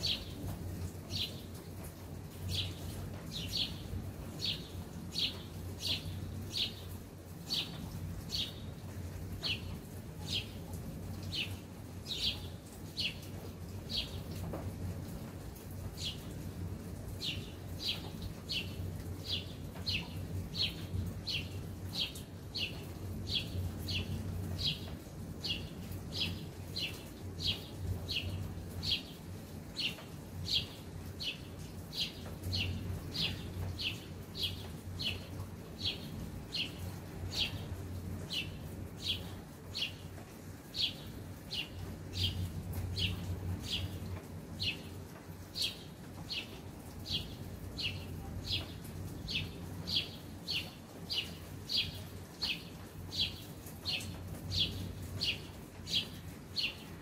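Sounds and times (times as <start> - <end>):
bird chirping: 0.0 - 0.5, 45.5 - 57.0.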